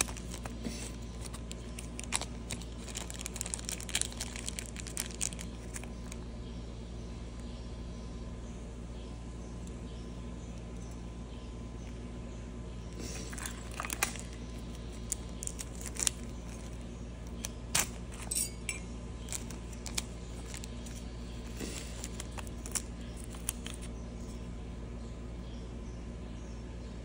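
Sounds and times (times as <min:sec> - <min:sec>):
plastic bag and box crinkles: 0:00.0 - 0:06.2, 0:13.0 - 0:18.3, 0:19.2 - 0:24.4
steady low hum: 0:00.0 - 0:27.0
metallic chain clinks: 0:18.2 - 0:18.9.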